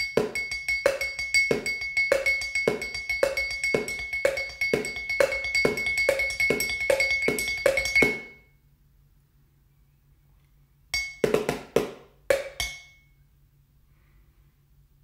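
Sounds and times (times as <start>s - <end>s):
sticks tapping on containers: 0.0s - 8.4s, 11.0s - 13.0s
glassy ring: 0.0s - 8.6s, 11.0s - 11.3s, 12.3s - 13.3s.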